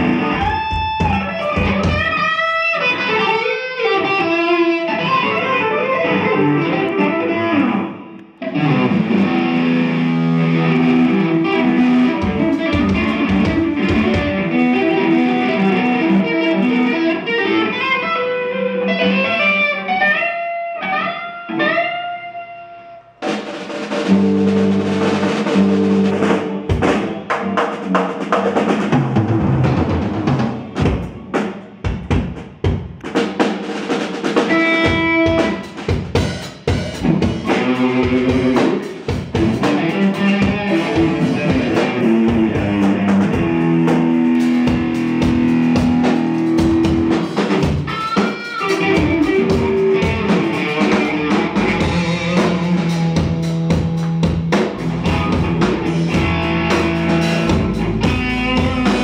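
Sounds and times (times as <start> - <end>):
drum strikes: 0.0 - 2.5, 10.8 - 14.6, 23.2 - 59.0
electric guitar: 0.0 - 32.0, 33.1 - 59.0
live rock band playing: 0.0 - 59.0.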